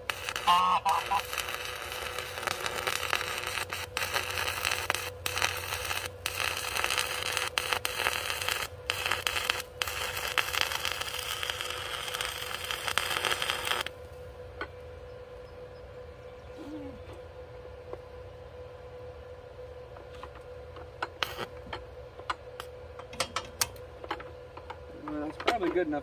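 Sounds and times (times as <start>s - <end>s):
arc welding hiss: 0.0s - 14.0s, 21.2s - 21.6s.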